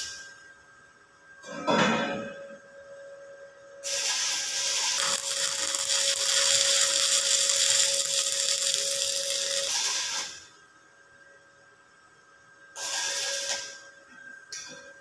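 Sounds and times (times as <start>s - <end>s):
welding arc crackling: 3.8s - 10.4s, 12.8s - 13.8s.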